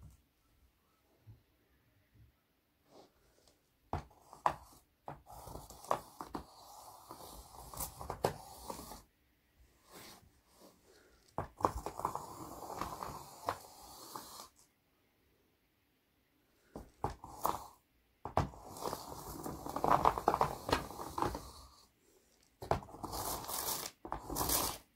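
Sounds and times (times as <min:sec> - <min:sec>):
pencil tapping on paper: 0:03.9 - 0:06.5, 0:16.8 - 0:18.6
pencil scratching on paper: 0:04.0 - 0:09.1.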